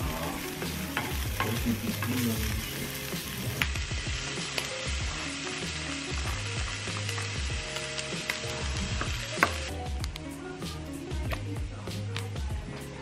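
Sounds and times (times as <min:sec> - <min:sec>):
sausage sizzling in frying pan: 0:00.0 - 0:10.2.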